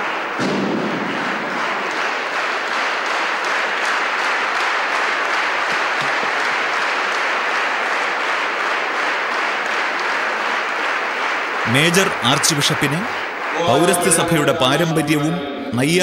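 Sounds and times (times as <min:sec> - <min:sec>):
large crowd applauding: 0:00.0 - 0:16.0.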